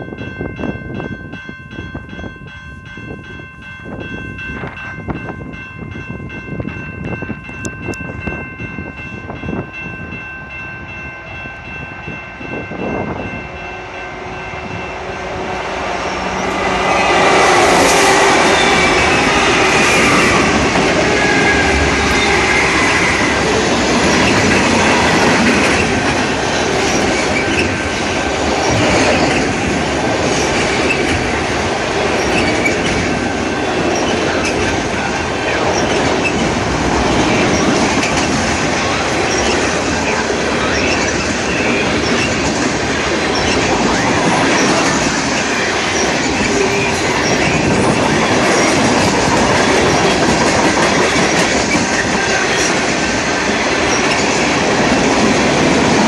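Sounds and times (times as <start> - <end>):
freight train rolling past: 0.0 - 56.0
wheels squealing on rails: 13.2 - 29.6, 32.0 - 56.0
wheels clacking over rail joints: 16.2 - 56.0.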